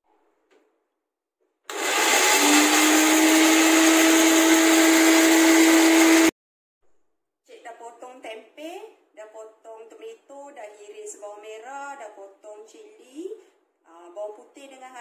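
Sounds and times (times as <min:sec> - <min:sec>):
electric blender motor whining: 0:01.7 - 0:06.3.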